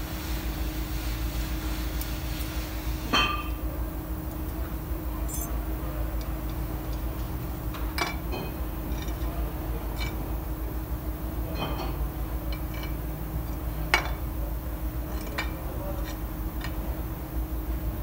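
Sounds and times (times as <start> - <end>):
steady low hum: 3.7 - 7.8
brake parts clinking: 5.2 - 5.6.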